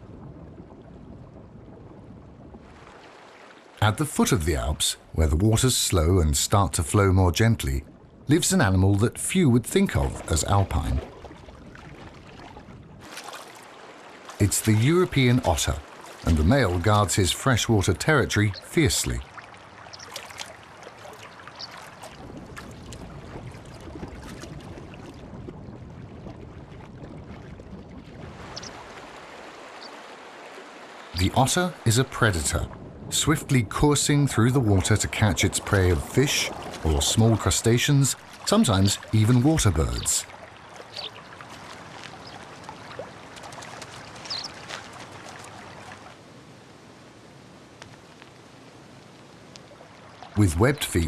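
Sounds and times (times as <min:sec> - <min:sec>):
flowing river water: 0:00.0 - 0:51.0
water lapping: 0:00.0 - 0:51.0
small splashes: 0:02.6 - 0:03.8, 0:09.6 - 0:25.6, 0:34.4 - 0:46.2, 0:49.1 - 0:50.5.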